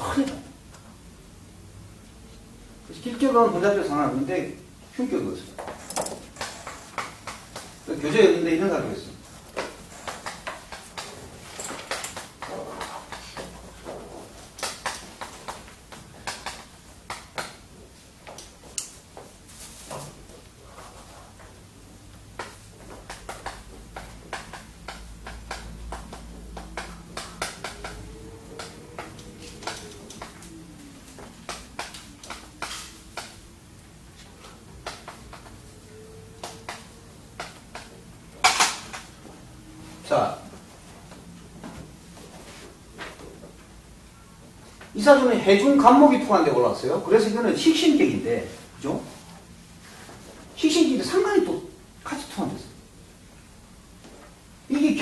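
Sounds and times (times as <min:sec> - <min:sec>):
chalk tapping on blackboard: 0:06.4 - 0:07.7, 0:22.4 - 0:28.0
chalk tapping and scraping: 0:31.4 - 0:33.4.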